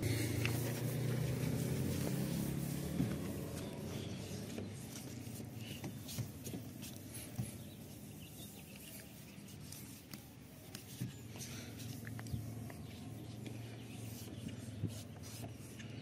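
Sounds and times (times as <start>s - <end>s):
cloth rubbing on glass: 0.2s - 15.8s.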